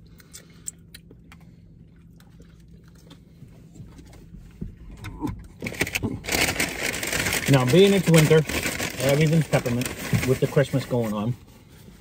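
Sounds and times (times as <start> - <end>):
rustling rush: 5.7 - 11.2.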